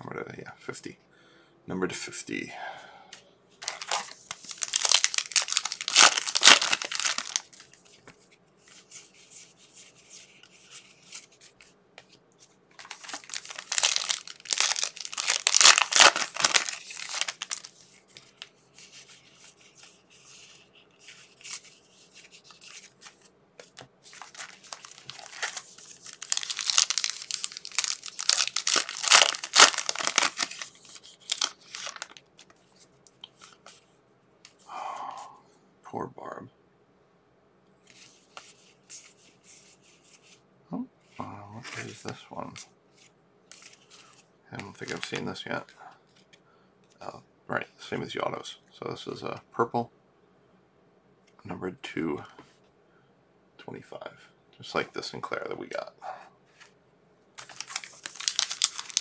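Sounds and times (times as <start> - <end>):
wrappers tearing and crinkling: 3.6 - 7.7, 12.8 - 17.7, 24.1 - 32.5, 44.6 - 45.3, 57.4 - 59.0
wrapper rustling: 3.6 - 8.0, 12.7 - 19.2, 19.8 - 32.8, 57.4 - 59.0.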